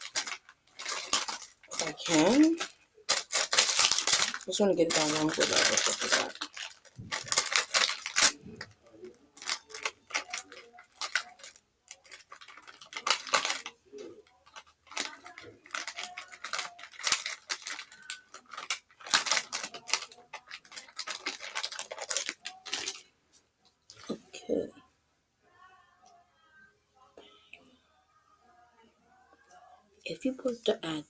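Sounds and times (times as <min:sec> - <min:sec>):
clay packet crinkling: 0:00.0 - 0:23.1.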